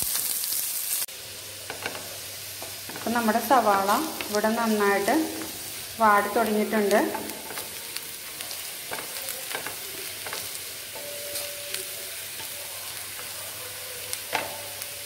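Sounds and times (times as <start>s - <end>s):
onions sizzling in oil: 0.0s - 15.0s
spatula scraping pan: 5.0s - 15.0s.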